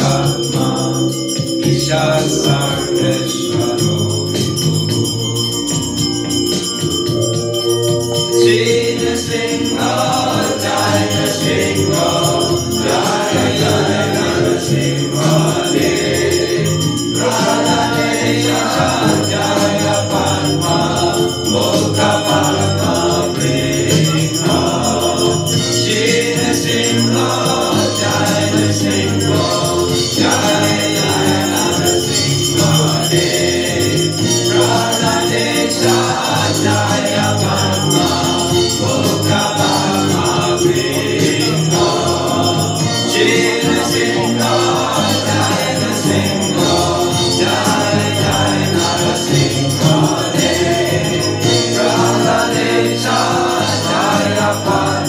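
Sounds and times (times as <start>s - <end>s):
chorus singing a hymn with instruments: 0.0s - 55.0s
high metallic ringing: 0.0s - 55.0s.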